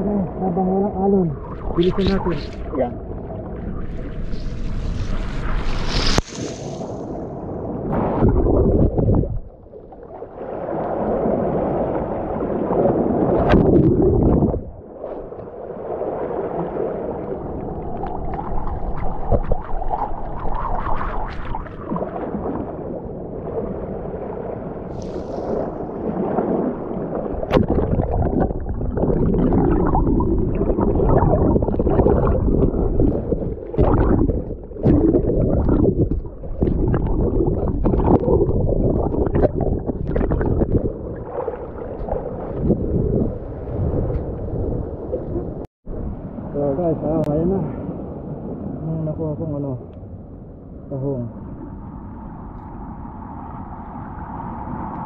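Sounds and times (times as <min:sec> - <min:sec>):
sea water sloshing over rock: 0:01.3 - 0:45.3.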